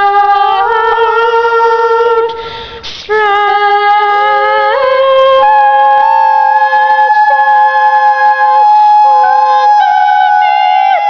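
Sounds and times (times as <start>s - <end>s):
young women singing unaccompanied: 0.0s - 2.3s, 3.1s - 11.0s.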